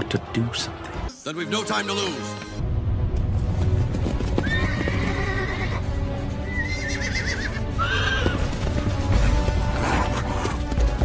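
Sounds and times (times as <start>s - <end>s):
background music: 0.0s - 11.0s
horses whinnying: 4.4s - 5.8s, 6.4s - 8.6s.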